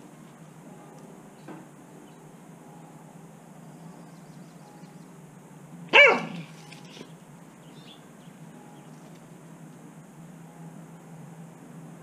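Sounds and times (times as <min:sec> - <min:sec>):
dog barking: 0:05.9 - 0:06.5.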